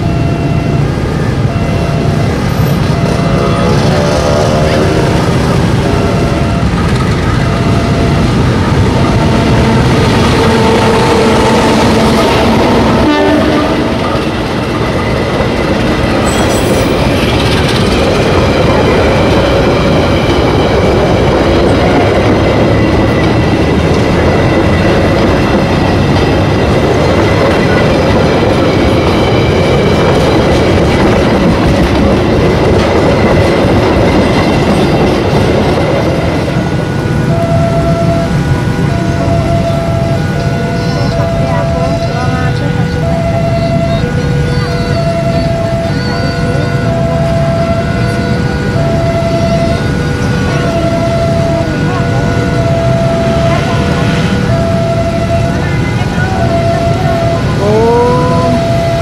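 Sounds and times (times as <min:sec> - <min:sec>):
train wheels on rails: 0:00.0 - 0:59.0
clickety-clack over rail joints: 0:02.1 - 0:57.6
train horn: 0:07.5 - 0:14.3.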